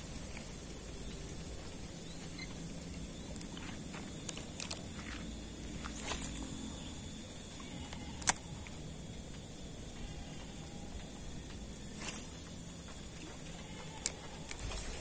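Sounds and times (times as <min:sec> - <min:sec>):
handling clicks: 0:03.3 - 0:05.2.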